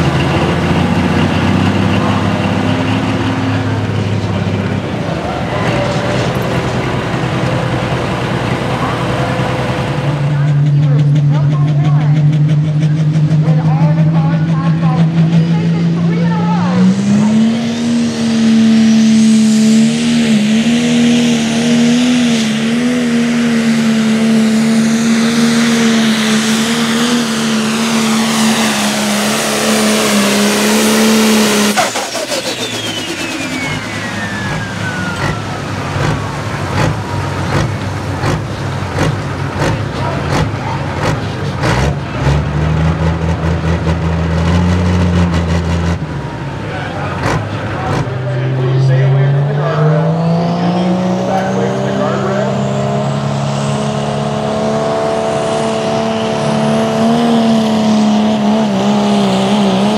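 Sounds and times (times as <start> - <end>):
diesel engine at full throttle: 0.0 - 59.9
turbocharger whistle winding down: 25.1 - 35.8.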